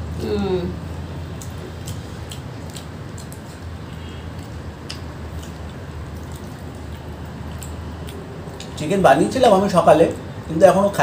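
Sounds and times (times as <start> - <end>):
steady low hum: 0.0 - 11.0
people eating with wet smacks: 0.1 - 8.8.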